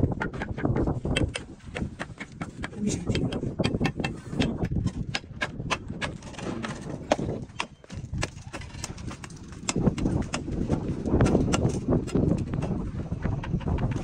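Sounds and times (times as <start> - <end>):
trowel knocking on cement blocks: 0.1 - 10.5.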